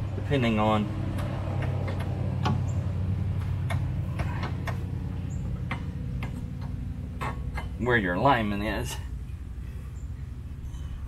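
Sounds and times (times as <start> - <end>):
steady low hum: 0.0 - 11.0
metal hardware clicks and taps: 1.1 - 2.7, 3.4 - 7.8.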